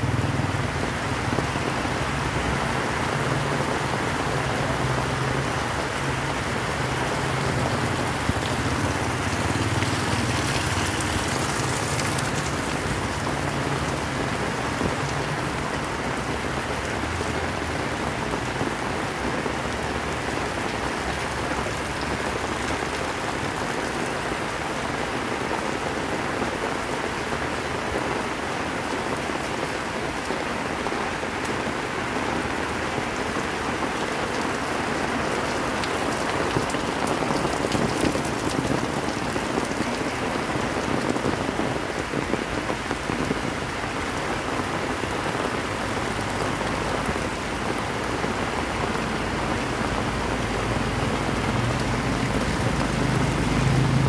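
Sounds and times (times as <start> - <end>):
heavy rain on street: 0.0 - 54.0.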